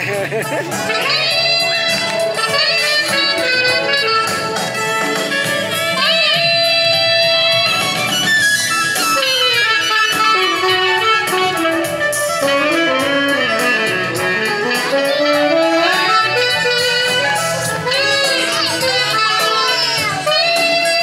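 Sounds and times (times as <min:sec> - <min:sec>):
musical accompaniment: 0:00.0 - 0:21.0
tenor saxophone melody: 0:00.6 - 0:21.0.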